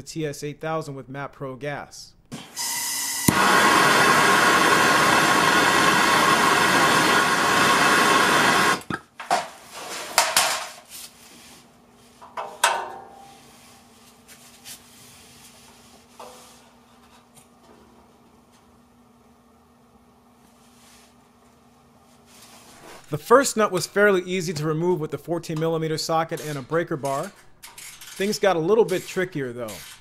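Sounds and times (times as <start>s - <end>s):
gas torch flame hissing: 2.7s - 8.9s.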